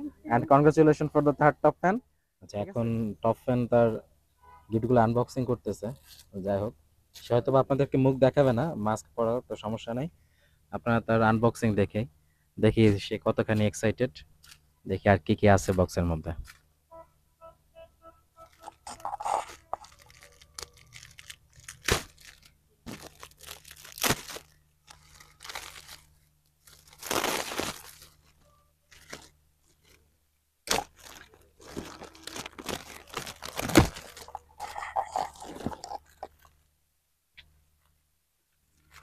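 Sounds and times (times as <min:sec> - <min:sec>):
wrapping paper crinkling: 0:18.4 - 0:30.0, 0:30.7 - 0:36.5.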